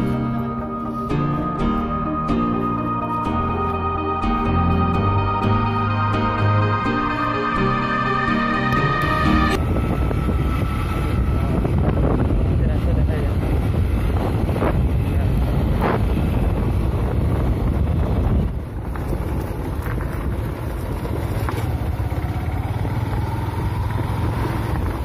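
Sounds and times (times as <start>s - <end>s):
wind rushing over microphone: 9.6s - 21.3s
motorcycle engine running: 9.6s - 25.0s.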